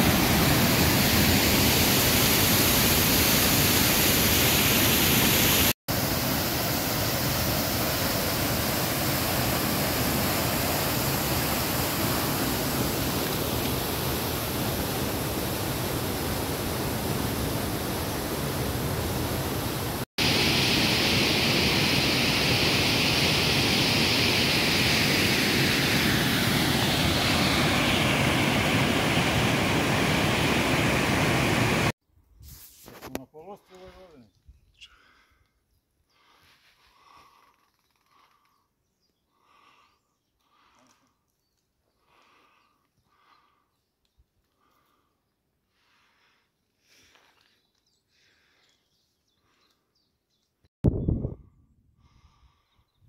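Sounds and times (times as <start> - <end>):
waterfall rushing: 0.0 - 31.9.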